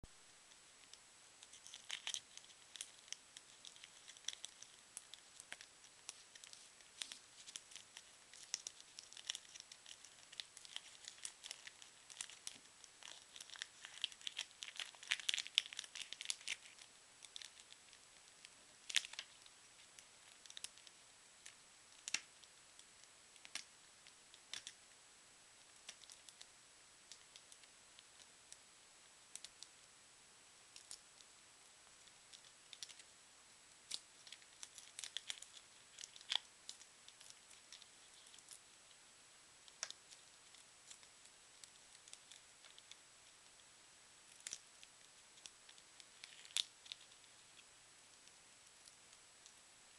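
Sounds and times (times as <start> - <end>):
wrappers crinkling and tearing: 1.4 - 18.0, 18.8 - 20.9, 34.2 - 36.5.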